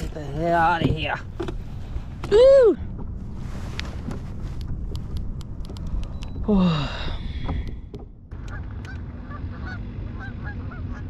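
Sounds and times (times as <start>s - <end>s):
steady low rumble: 0.0s - 11.0s
light ticks: 4.6s - 6.4s
geese honking: 8.4s - 11.0s.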